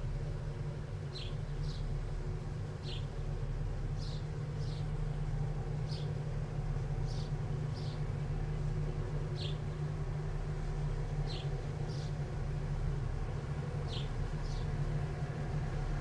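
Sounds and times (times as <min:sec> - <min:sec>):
low machinery rumble with hum: 0:00.0 - 0:16.0
bird chirping: 0:04.0 - 0:04.9, 0:09.4 - 0:09.6, 0:13.9 - 0:14.7.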